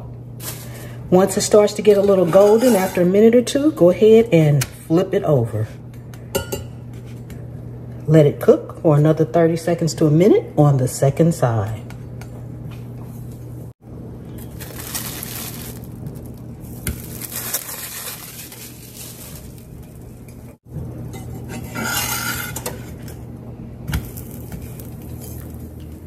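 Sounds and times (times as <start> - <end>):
low steady hum: 0.0 - 26.0
metal spatula scraping skillet: 2.0 - 3.2, 21.2 - 23.1.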